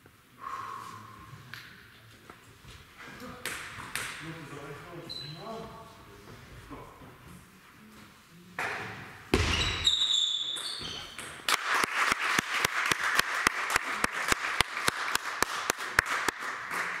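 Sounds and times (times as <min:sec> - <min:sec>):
people clapping: 0:11.4 - 0:17.0.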